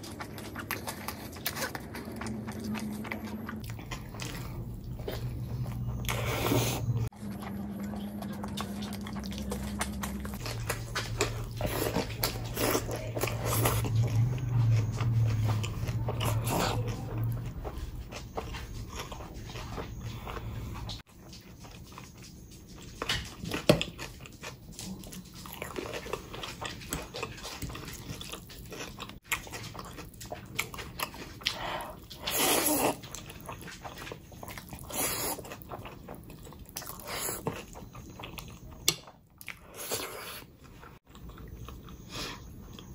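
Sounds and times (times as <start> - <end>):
chewing and lip-smacking: 0.0 - 42.9
low hum: 0.3 - 21.0.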